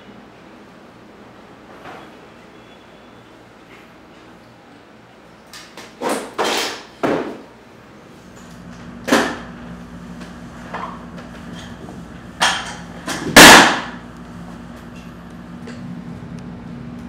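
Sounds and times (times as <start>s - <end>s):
steady low hum: 7.6s - 17.0s
sharp knocks and bangs: 9.0s - 9.5s, 12.4s - 14.0s.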